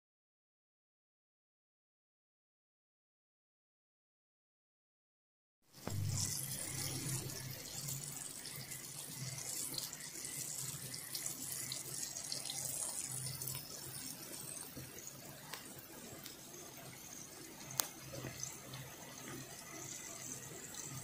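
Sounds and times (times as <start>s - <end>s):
low hum: 5.8s - 8.3s
gas bubbles fizzing: 5.9s - 21.0s.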